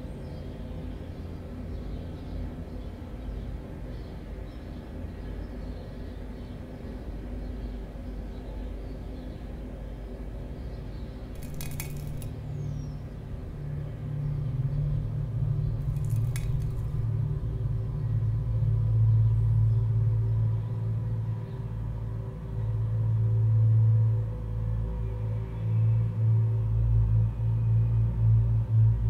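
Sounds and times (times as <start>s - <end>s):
low rumbling drone: 11.3s - 29.0s.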